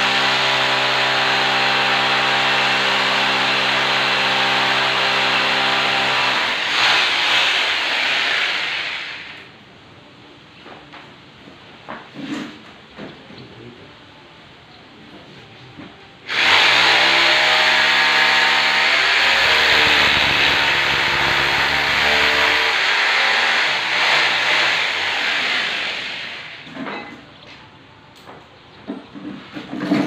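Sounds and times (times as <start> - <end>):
electric drill boring: 0.0 - 9.5, 16.3 - 26.7.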